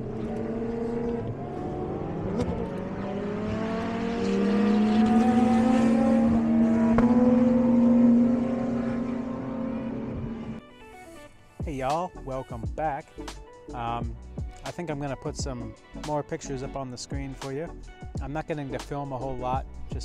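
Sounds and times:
race car engines accelerating: 0.0 - 10.6.

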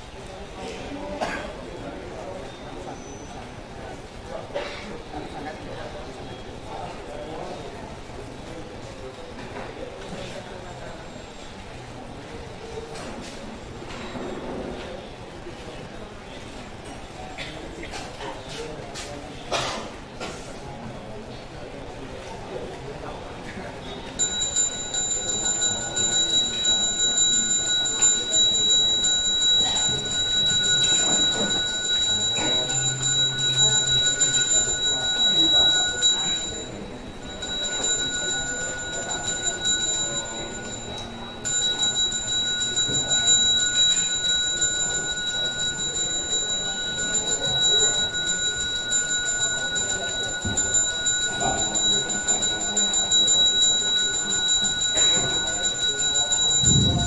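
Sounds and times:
handbell ringing: 24.2 - 57.0.

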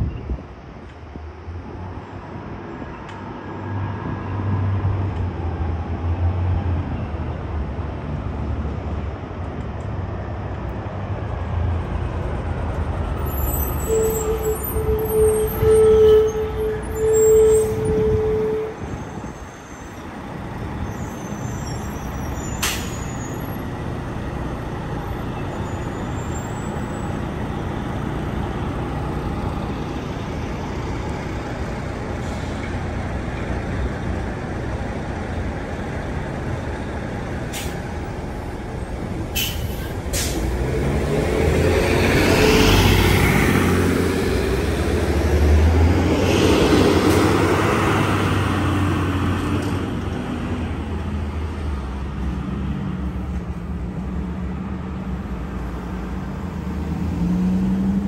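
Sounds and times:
buses driving slowly: 0.0 - 58.0
air brake hisses: 39.4 - 40.5.

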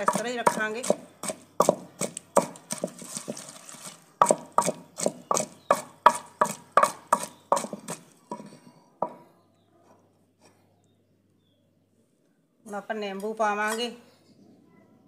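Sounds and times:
wooden pestle pounding in clay pot: 0.0 - 3.5, 4.2 - 9.2.

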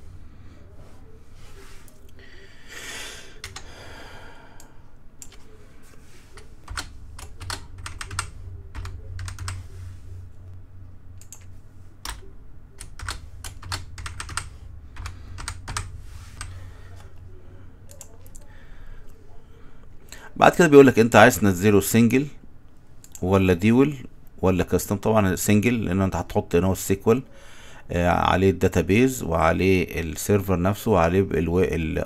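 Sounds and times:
computer keyboard typing: 3.4 - 3.7, 5.2 - 5.5, 6.4 - 9.7, 11.2 - 16.6.

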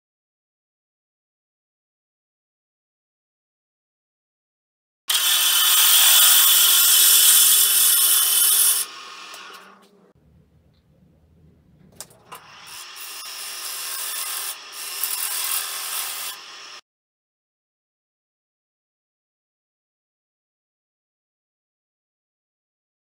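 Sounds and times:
gouge cutting wood on lathe: 5.1 - 10.0, 12.3 - 16.8
low rumble: 10.1 - 12.3.

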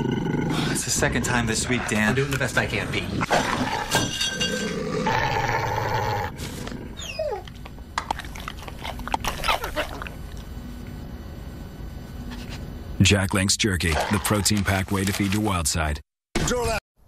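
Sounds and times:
wolf growling: 0.0 - 7.5
wolf whining: 3.3 - 10.3.

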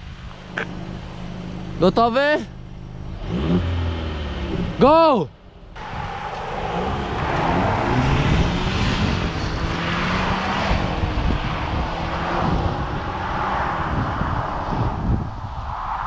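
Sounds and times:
car engine accelerating: 0.0 - 15.2
wind and road noise: 0.0 - 16.0.

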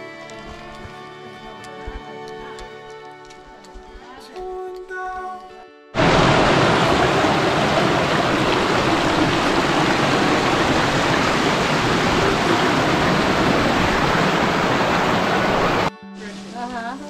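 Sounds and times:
creek water rushing down cascade: 6.0 - 15.9.

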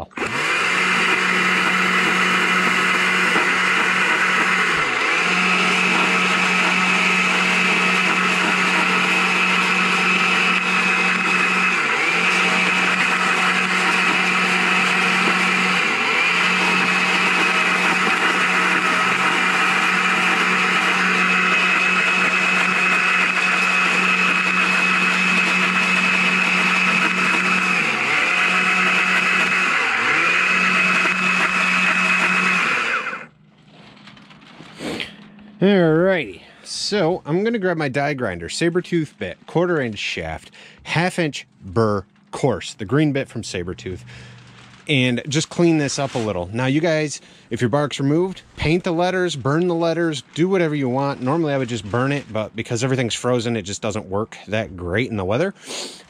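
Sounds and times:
chainsaw cutting wood: 0.0 - 33.3, 43.8 - 46.8, 49.5 - 53.0.

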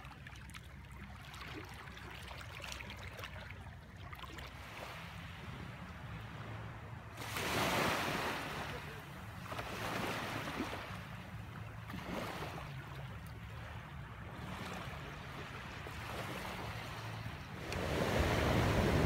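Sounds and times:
gentle waves washing onto shore: 4.2 - 19.0.

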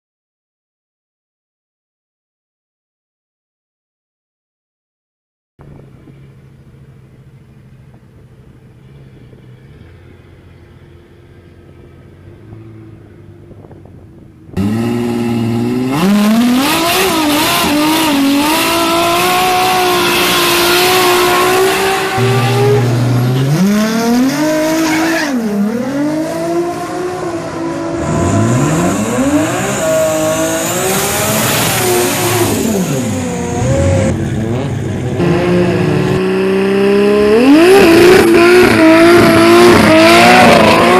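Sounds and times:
quiet steady engine hum: 5.6 - 15.9
drag car engines revving hard: 14.5 - 40.9
tyre burnout: 14.6 - 40.9.

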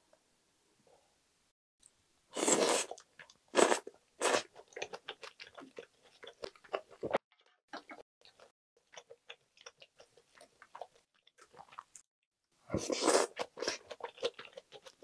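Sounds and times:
person slurping noodles: 2.4 - 4.5, 12.7 - 13.9
wet chewing clicks: 4.6 - 12.1, 13.3 - 15.0.

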